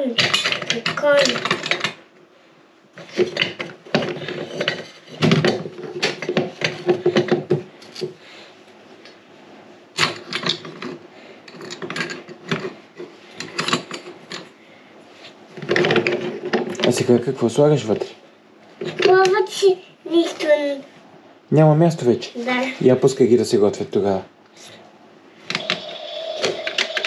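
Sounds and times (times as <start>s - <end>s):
small hard items clattering: 25.5s - 27.0s.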